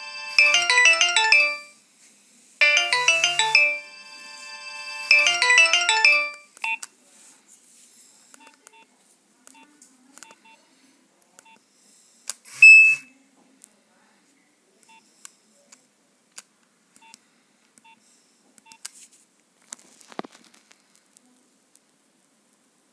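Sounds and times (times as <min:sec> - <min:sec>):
loud phone tone: 0:00.0 - 0:01.7, 0:02.6 - 0:06.5
ringtone: 0:00.0 - 0:01.8, 0:02.6 - 0:06.6, 0:12.6 - 0:13.0
phone keypad beeps: 0:00.4 - 0:01.7, 0:05.1 - 0:06.8, 0:12.6 - 0:13.1.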